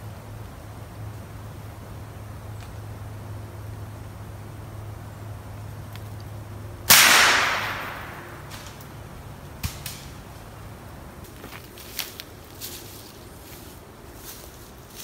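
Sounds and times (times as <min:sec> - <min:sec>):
rifle shot echoing: 0:06.9 - 0:08.7.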